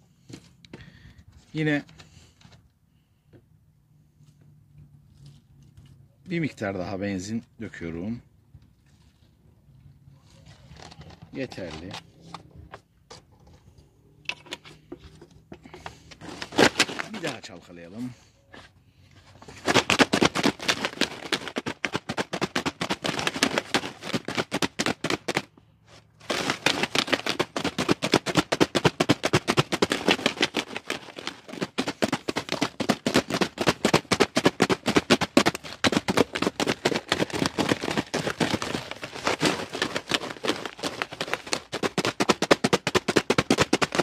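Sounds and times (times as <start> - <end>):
chain rattling in a plastic bottle: 26.2 - 44.0.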